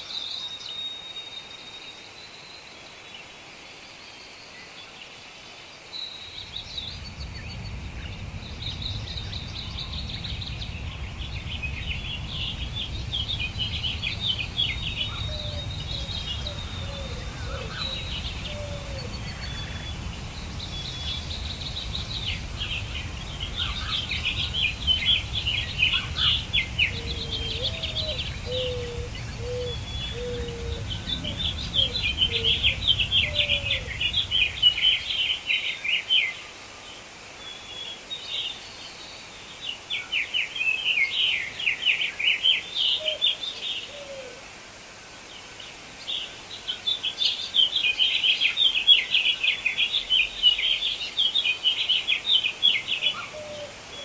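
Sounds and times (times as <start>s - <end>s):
low background rumble: 6.3s - 35.4s
low bird notes: 6.3s - 35.4s
songbird trilling: 12.0s - 35.4s.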